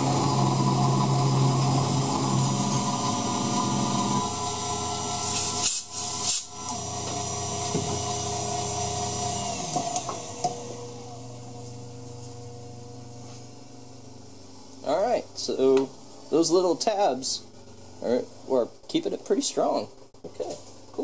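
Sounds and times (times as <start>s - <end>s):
mill motor whine: 0.0s - 14.3s.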